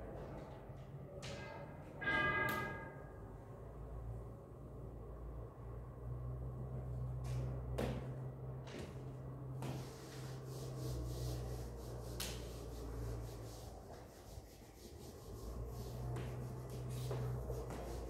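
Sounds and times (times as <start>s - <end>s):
blackboard being wiped: 9.4s - 18.0s.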